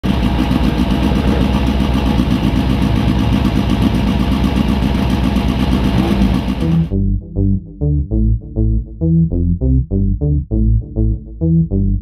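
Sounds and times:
rally car engine running: 0.0s - 7.0s.

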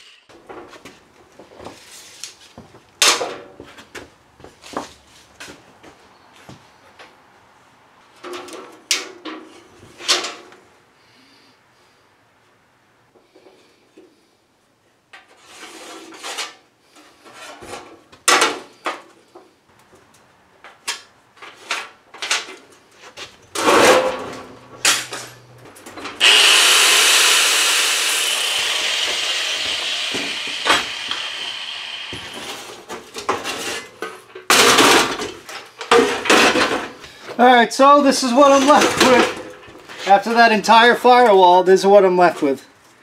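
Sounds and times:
power tool cutting steel: 26.2s - 32.8s.

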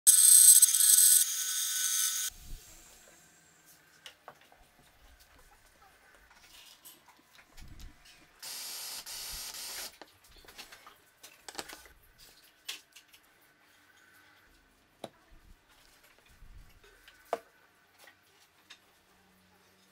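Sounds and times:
cordless drill running: 0.1s - 2.3s.

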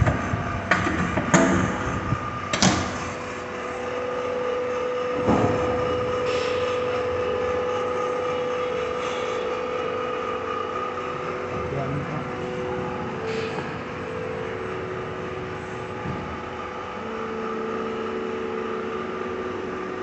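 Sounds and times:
hydraulic drive hum and whine: 0.0s - 20.0s
machine knock: 5.2s - 6.0s.

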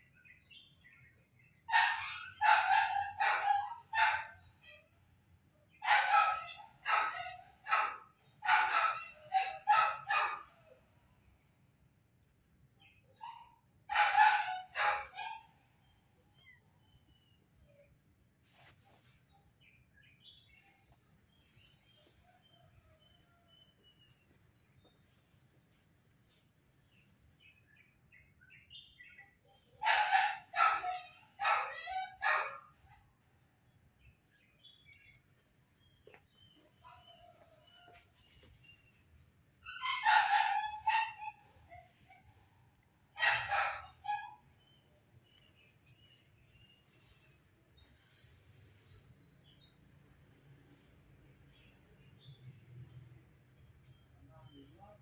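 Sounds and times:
dog barking: 1.7s - 4.8s, 5.8s - 10.8s, 13.2s - 15.6s, 29.8s - 33.1s, 39.7s - 44.5s.

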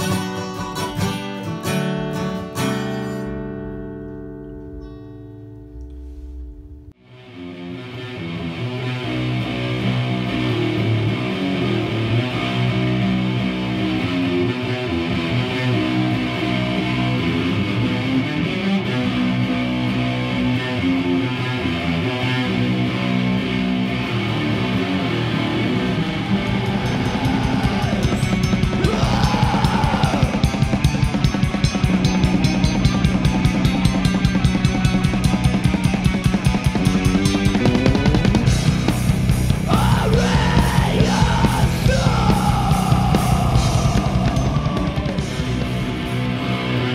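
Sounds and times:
heavy metal electric guitar: 4.6s - 46.9s
drum kit: 25.6s - 46.9s.

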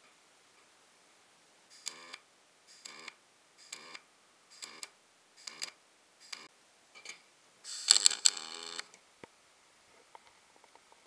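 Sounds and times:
arc welding crackling: 7.7s - 8.9s.

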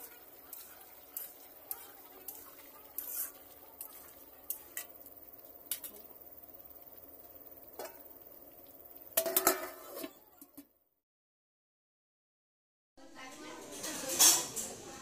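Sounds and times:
metal spatula scraping iron pan: 0.0s - 4.9s, 9.2s - 10.3s.

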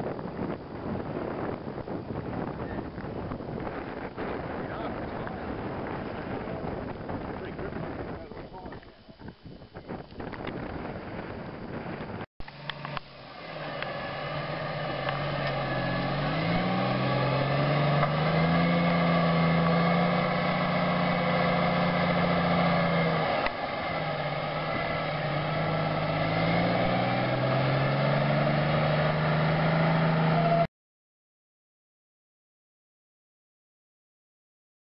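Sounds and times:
truck diesel engine accelerating: 12.5s - 30.7s.

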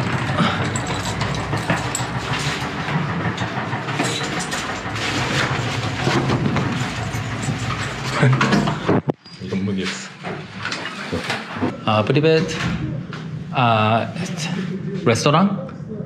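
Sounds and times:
vehicle rumble: 0.0s - 9.1s
clicks and rattles: 0.0s - 9.2s.

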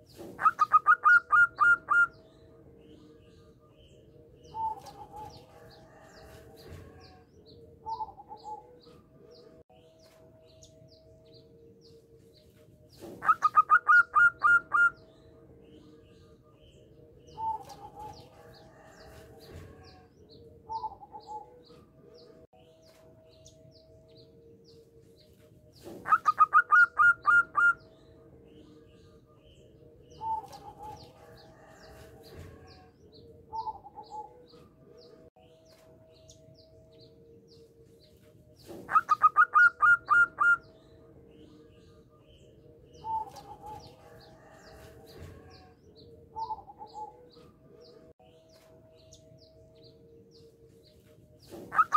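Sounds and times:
dove cooing: 0.0s - 2.2s, 4.5s - 7.2s, 7.8s - 8.9s, 13.0s - 15.0s, 20.7s - 21.7s, 25.8s - 27.8s, 33.5s - 34.5s, 38.7s - 40.6s, 46.3s - 47.3s, 51.5s - 51.9s
birds chirping: 0.0s - 6.3s, 6.9s - 19.1s, 19.8s - 44.7s, 45.4s - 51.9s.

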